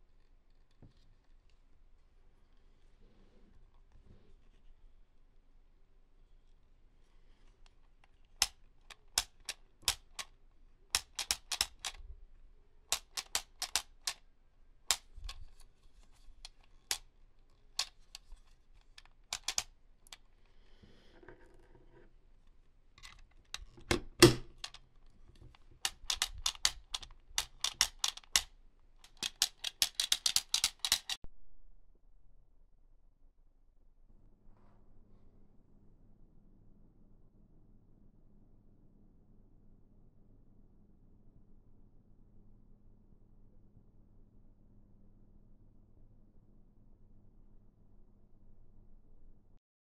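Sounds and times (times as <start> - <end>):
plastic toys clicking and tapping: 7.8 - 12.1, 12.9 - 14.2, 14.9 - 20.3, 23.0 - 31.2.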